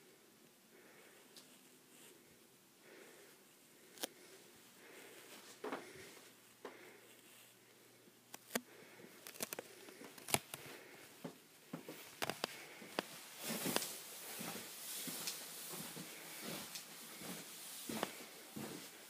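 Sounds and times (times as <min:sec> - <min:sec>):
camera handling noise: 0:08.3 - 0:08.6, 0:09.2 - 0:10.6
footsteps on indoor stairs: 0:11.2 - 0:19.0
rustling hiss: 0:11.8 - 0:19.0.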